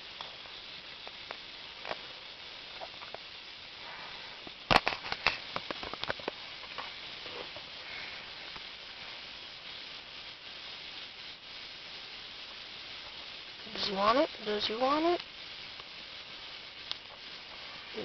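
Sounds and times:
faint steady hiss: 0.0s - 18.0s.

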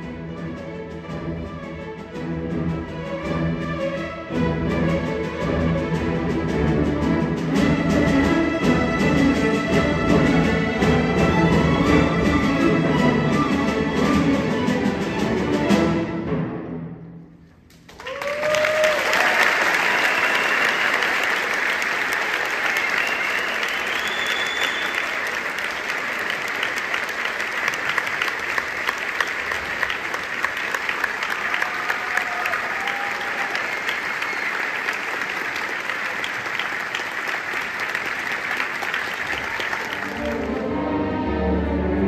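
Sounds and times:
audience applauding: 17.7s - 40.9s
audience cheering: 17.9s - 40.8s.

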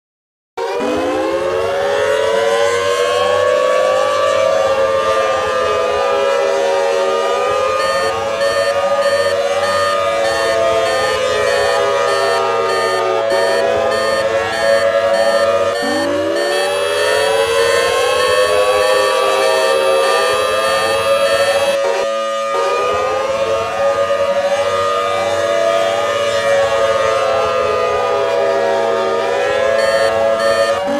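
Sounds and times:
multi-tone siren: 0.6s - 30.9s.

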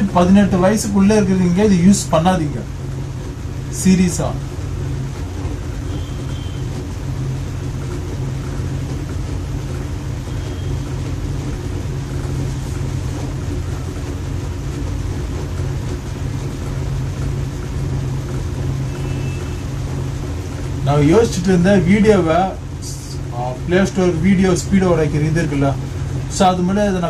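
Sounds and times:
electric fan humming: 0.0s - 27.0s.

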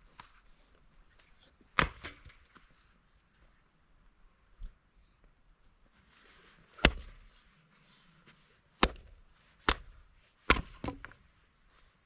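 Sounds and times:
wood chopping blows: 1.8s - 2.4s, 6.8s - 7.2s, 8.8s - 11.2s.

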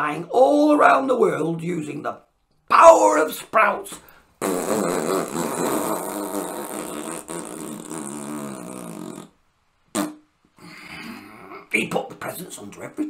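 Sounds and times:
person blowing a raspberry: 4.4s - 11.6s.

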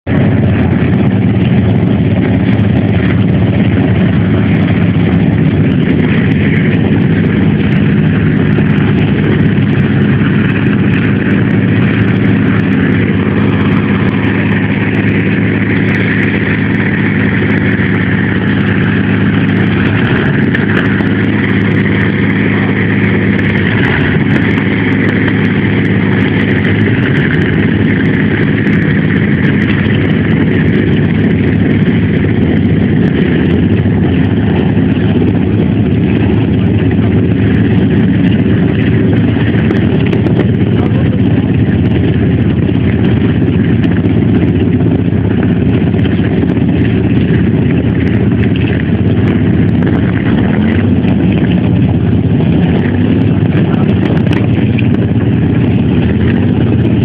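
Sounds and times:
aero engine running loudly: 0.0s - 57.0s.

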